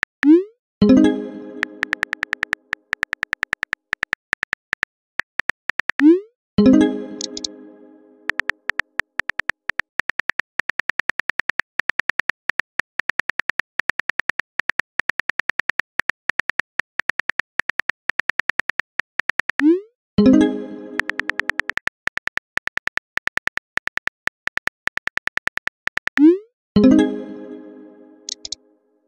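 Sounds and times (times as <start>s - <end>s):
phone keyboard typing clicks: 1.6s - 6.1s, 7.2s - 7.5s, 8.3s - 19.7s, 21.0s - 26.3s, 28.3s - 28.6s
ringing message alert tone: 6.0s - 8.4s.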